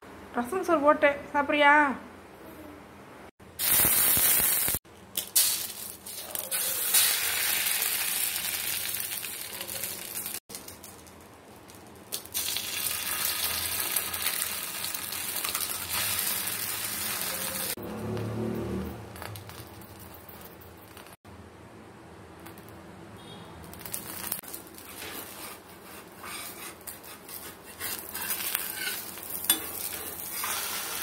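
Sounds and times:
eggs sizzling in oil: 3.6 - 17.8, 23.8 - 31.0.

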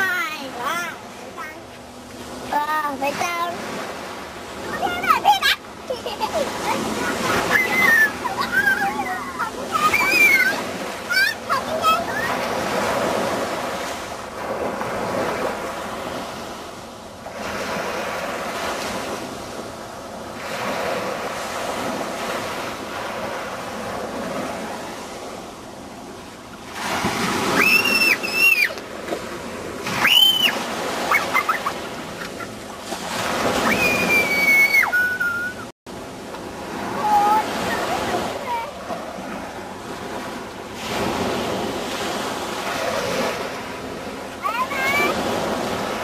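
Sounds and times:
waves washing onto a beach: 0.0 - 46.0
children squealing: 7.3 - 11.4, 27.5 - 28.8, 30.0 - 31.8, 33.6 - 35.7.

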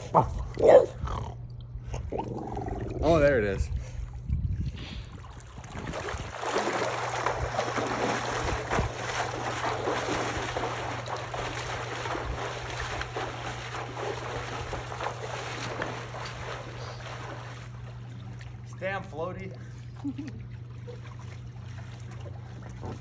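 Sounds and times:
pool water splashing from swimming: 5.2 - 23.0.

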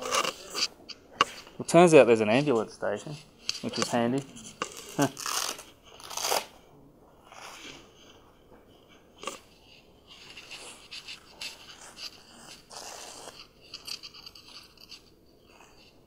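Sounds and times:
scraping and rasping: 0.0 - 6.5, 9.2 - 16.0
short rips: 4.6 - 6.5.

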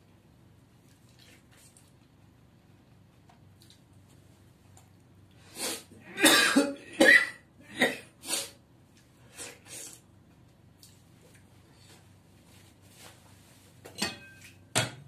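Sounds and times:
man coughing: 6.1 - 8.1.

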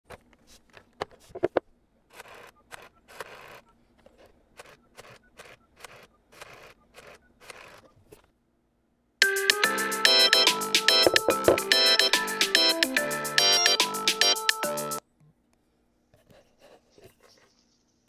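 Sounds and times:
rotary phone dial whirring: 1.4 - 8.3.

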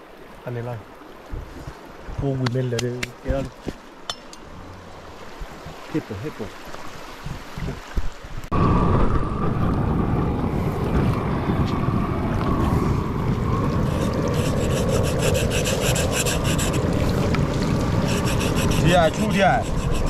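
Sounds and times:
stream rushing: 0.0 - 8.6, 9.4 - 20.0
knife scraping fur: 13.9 - 16.9, 18.1 - 20.0.

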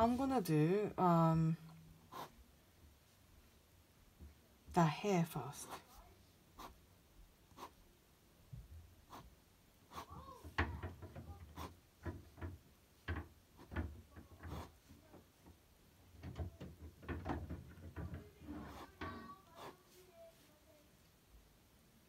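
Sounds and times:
pen scratching on paper: 2.1 - 2.3, 6.6 - 6.8, 7.5 - 7.8, 9.1 - 9.3, 9.9 - 10.2, 11.5 - 11.8, 14.4 - 14.9, 18.6 - 19.9.

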